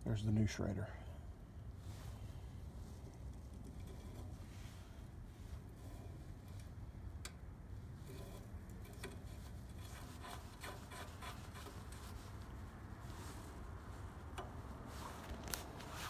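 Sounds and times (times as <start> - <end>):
small tool clicks and rubbing: 8.1 - 12.1.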